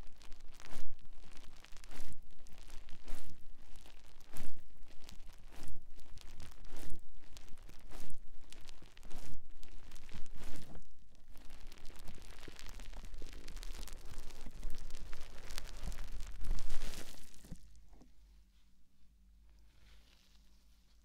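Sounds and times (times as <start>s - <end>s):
sponge being squeezed: 11.4s - 17.7s.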